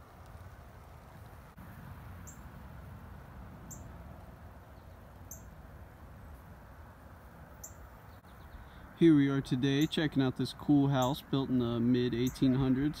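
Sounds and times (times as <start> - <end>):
low outdoor rumble: 0.0 - 13.0
small bird high call: 3.7 - 3.9.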